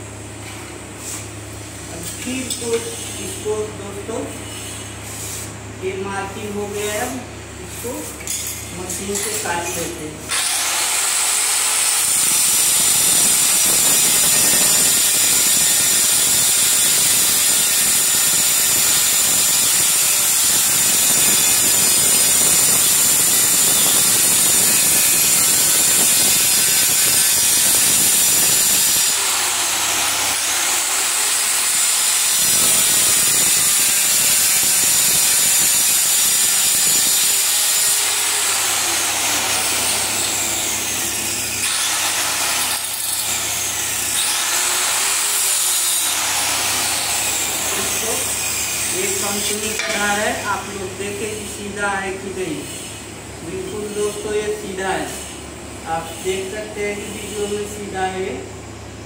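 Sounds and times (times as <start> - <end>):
electric tile cutter whining: 7.9 - 52.6
blade grinding tile: 9.1 - 50.1.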